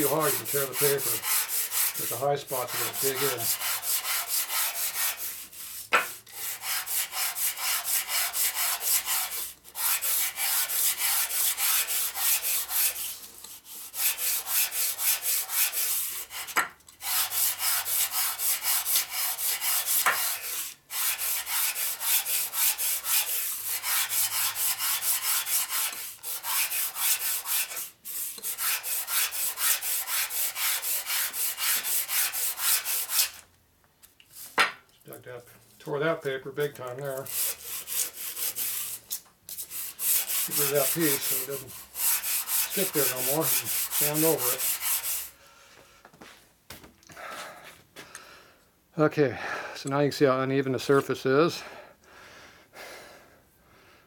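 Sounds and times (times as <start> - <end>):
metal part sanded on sandpaper: 0.0 - 33.4, 37.1 - 45.3.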